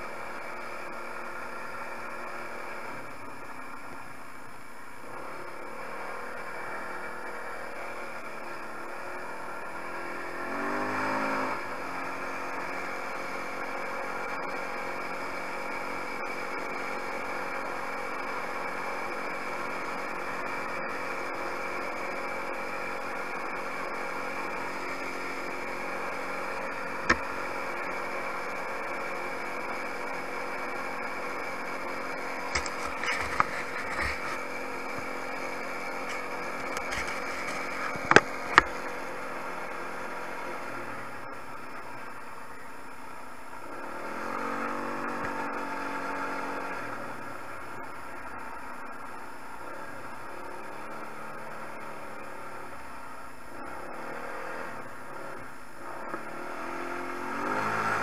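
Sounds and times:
quad bike engine revving: 5.0s - 41.4s, 43.5s - 47.7s, 53.5s - 58.0s.

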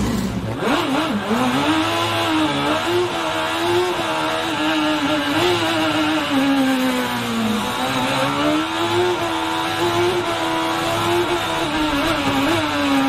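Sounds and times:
race car engine at high revs: 0.0s - 13.0s.

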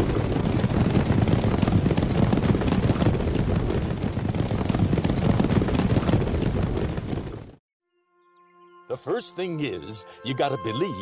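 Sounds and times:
horse herd galloping: 0.0s - 7.6s.

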